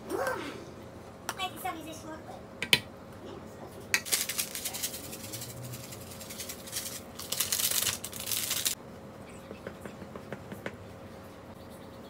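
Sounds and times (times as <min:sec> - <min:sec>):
plastic sachet rustling: 0:04.1 - 0:08.8.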